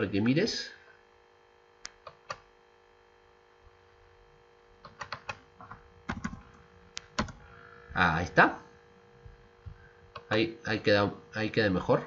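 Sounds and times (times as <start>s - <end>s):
faint steady hum: 0.0s - 12.0s
keyboard typing: 4.8s - 7.4s.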